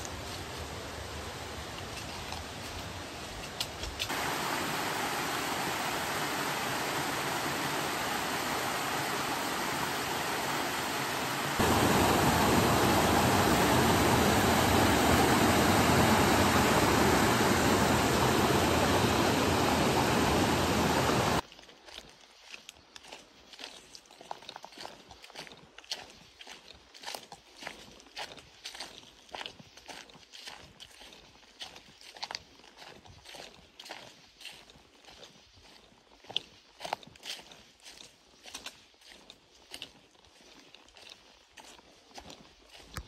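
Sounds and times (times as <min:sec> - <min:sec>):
flowing water rushing: 0:04.0 - 0:21.4.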